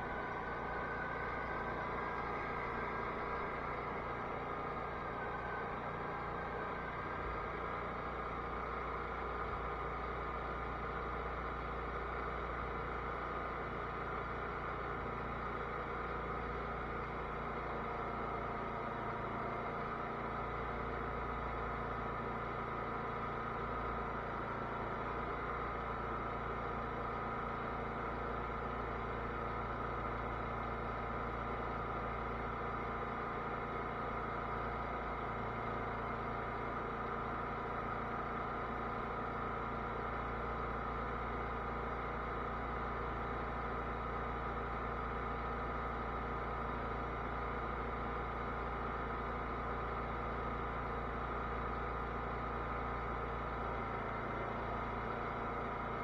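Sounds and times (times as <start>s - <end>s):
lawn tractor engine running: 0.0s - 10.1s.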